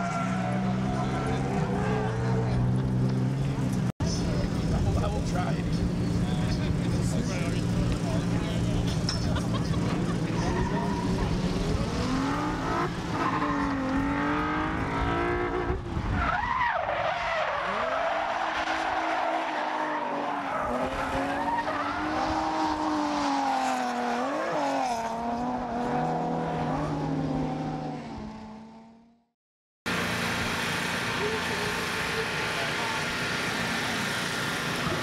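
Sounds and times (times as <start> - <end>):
tires squealing: 0.0 - 3.6, 9.7 - 25.1
car engines revving: 0.0 - 29.2, 29.9 - 35.0.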